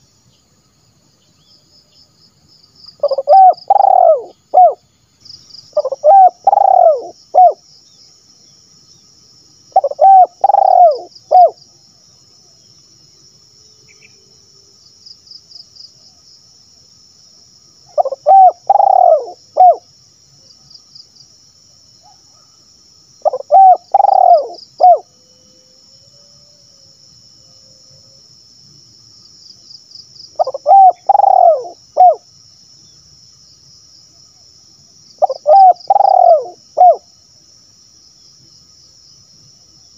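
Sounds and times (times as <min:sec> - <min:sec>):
dove cooing: 0:03.0 - 0:04.8, 0:05.8 - 0:07.6, 0:09.8 - 0:11.6, 0:18.0 - 0:19.8, 0:23.2 - 0:25.1, 0:30.4 - 0:32.2, 0:35.2 - 0:37.0.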